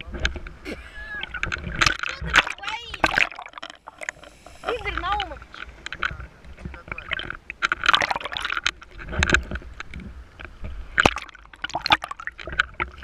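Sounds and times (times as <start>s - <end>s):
sea water splashing: 0.0s - 13.0s
underwater sound: 0.0s - 13.0s.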